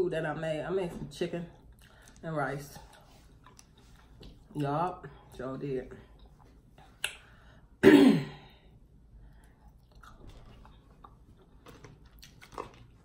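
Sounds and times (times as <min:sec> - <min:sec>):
chewing with small clicks: 0:01.5 - 0:04.6, 0:09.3 - 0:13.0.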